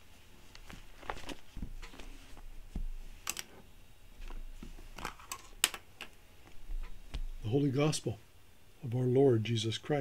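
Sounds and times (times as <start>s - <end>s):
soft low thumps: 1.5s - 3.1s, 6.5s - 7.5s.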